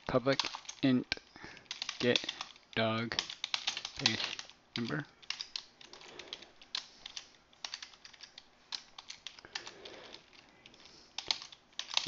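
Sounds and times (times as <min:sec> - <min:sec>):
computer keyboard typing: 0:00.3 - 0:00.8, 0:01.5 - 0:12.0.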